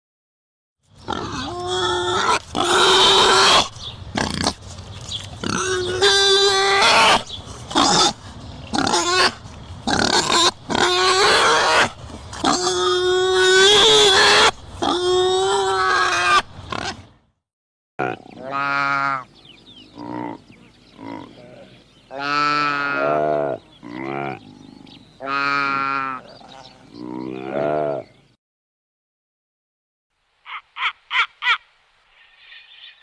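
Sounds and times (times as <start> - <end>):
loud harsh animal call: 1.1 - 4.5, 5.5 - 17.1, 18.0 - 19.3, 21.0 - 28.1.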